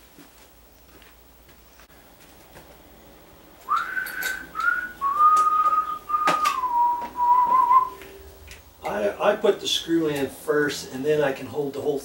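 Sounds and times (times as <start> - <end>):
man whistling long notes: 3.7 - 8.2.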